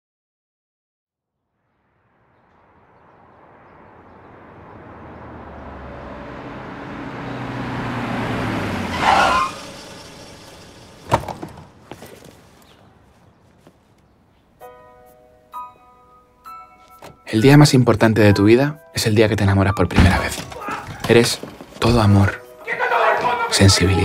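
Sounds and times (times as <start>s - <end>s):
car engine and road noise: 1.6s - 14.6s
tire squeal: 3.7s - 11.4s.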